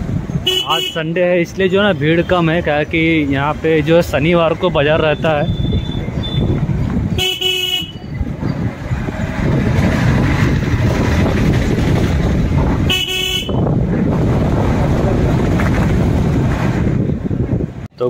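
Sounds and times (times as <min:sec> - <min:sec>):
low rumble of riding: 0:00.0 - 0:18.0
motorbike horn beeps: 0:05.4 - 0:08.2, 0:12.9 - 0:13.7.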